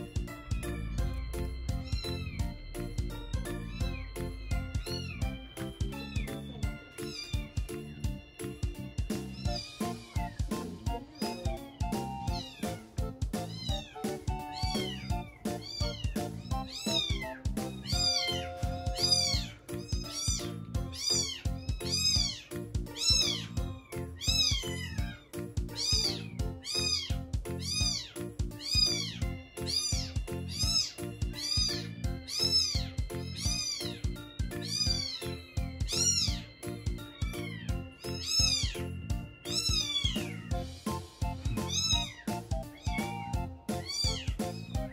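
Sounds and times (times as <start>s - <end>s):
background music with steady beat: 0.0s - 44.9s
kitten mewing: 13.5s - 23.5s, 24.2s - 34.0s, 37.5s - 38.8s, 41.5s - 44.8s.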